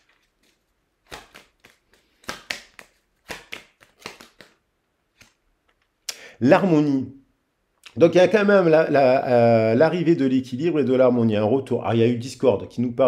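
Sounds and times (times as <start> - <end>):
cards clicking and tapping: 0.0 - 4.6.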